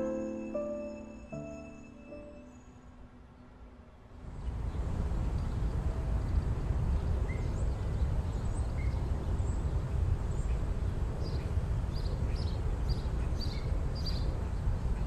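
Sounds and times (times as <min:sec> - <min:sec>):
small birds chirping: 0:05.4 - 0:15.0.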